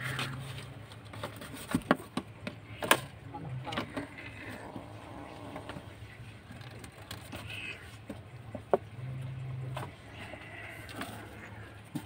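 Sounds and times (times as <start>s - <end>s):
kittens scuffling on cardboard: 0.0s - 2.4s
low steady hum: 0.0s - 12.0s.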